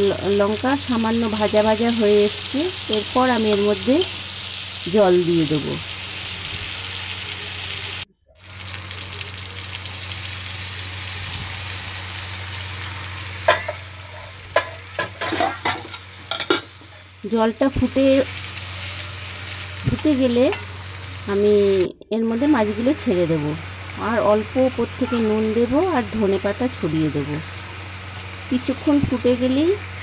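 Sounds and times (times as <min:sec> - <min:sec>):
oil sizzling in a wok: 0:00.0 - 0:30.0
metal spoon scraping wok: 0:12.8 - 0:17.1.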